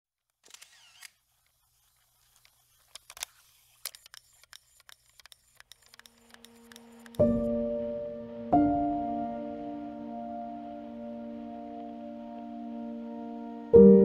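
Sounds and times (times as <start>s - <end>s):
faint scattered clicks: 2.2s - 7.3s.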